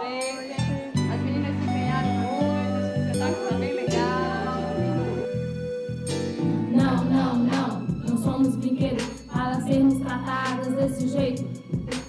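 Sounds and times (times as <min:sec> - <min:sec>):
person singing: 0:00.0 - 0:05.5, 0:06.7 - 0:12.0
instrumental accompaniment: 0:00.0 - 0:12.0.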